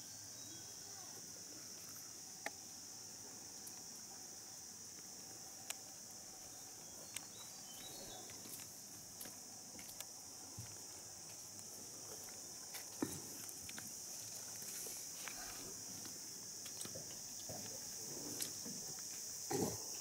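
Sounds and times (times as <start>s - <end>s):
high insect drone: 0.0s - 20.0s
shuffling steps: 6.2s - 16.7s.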